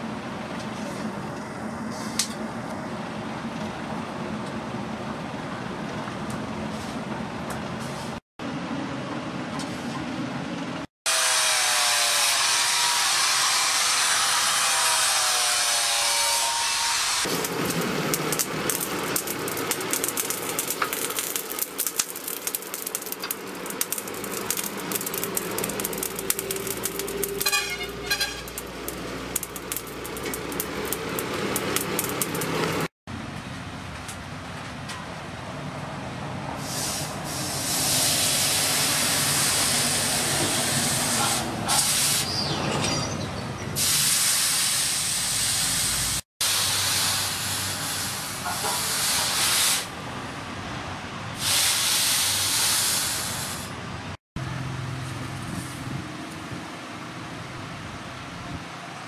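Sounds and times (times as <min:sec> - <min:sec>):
burning coals crackling: 0:17.2 - 0:32.9
forge fire rushing: 0:17.2 - 0:32.9.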